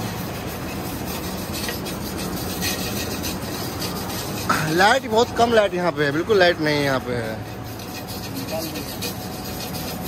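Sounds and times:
wire brush scrubbing metal: 0:00.0 - 0:10.0.

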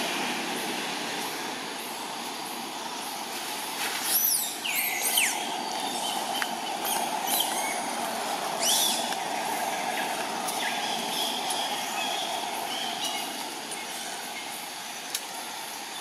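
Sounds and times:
forest drone: 0:00.0 - 0:16.0.

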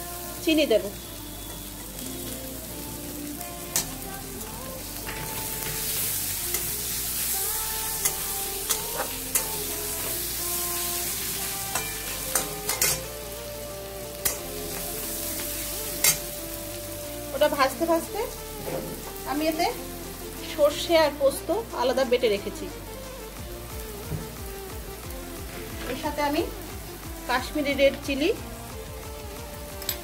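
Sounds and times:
onions sizzling in oil: 0:00.0 - 0:30.0
metal spatula scraping pan: 0:11.2 - 0:13.1.

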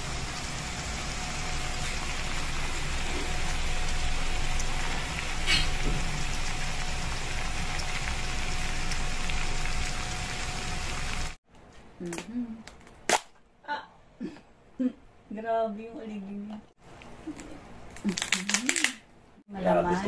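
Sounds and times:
food sizzling in a pan: 0:00.0 - 0:11.4
sharp crackle: 0:01.3 - 0:11.4.

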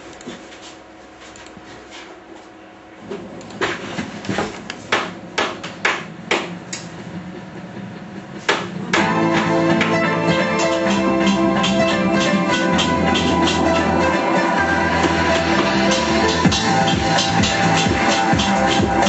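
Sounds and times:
music: 0:07.2 - 0:19.0.

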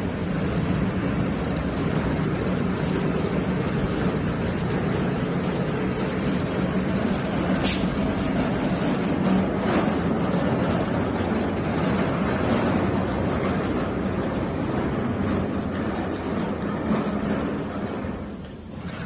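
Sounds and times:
sewing machine whirring: 0:00.2 - 0:13.2, 0:18.7 - 0:19.0
short hisses: 0:07.6 - 0:08.0.

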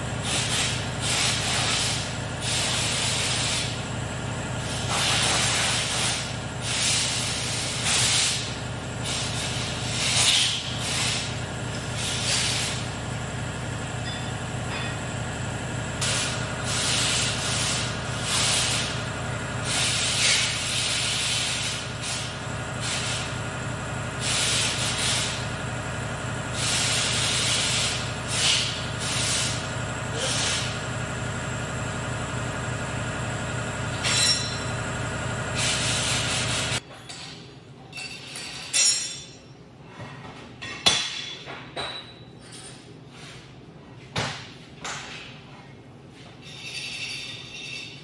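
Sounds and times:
steady machine hum: 0:00.0 - 0:36.8.

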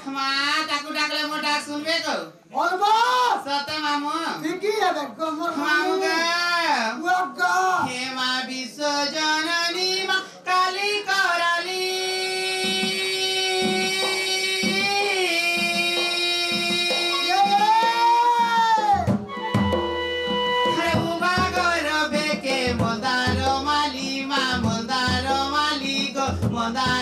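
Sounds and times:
person singing into microphone: 0:05.6 - 0:19.2, 0:20.2 - 0:27.0
drum beats: 0:11.9 - 0:27.0.

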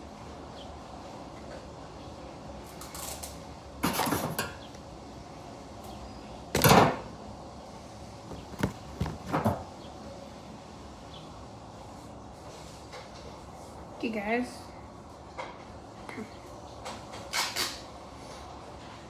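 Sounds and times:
duct tape tearing: 0:17.3 - 0:17.8.

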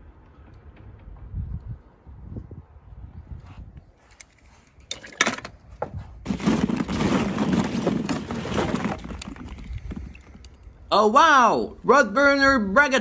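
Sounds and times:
plastic balls clattering: 0:06.2 - 0:10.6.

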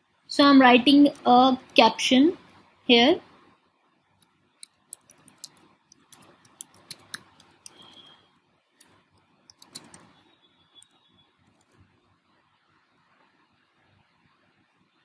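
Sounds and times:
computer keyboard typing: 0:04.6 - 0:08.2, 0:09.5 - 0:10.1, 0:10.8 - 0:11.8.

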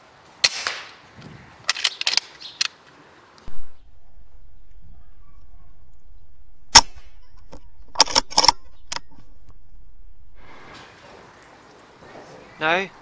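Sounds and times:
air rifle shot crack: 0:03.5 - 0:10.4
sharp clicks and knocks: 0:06.7 - 0:09.7.

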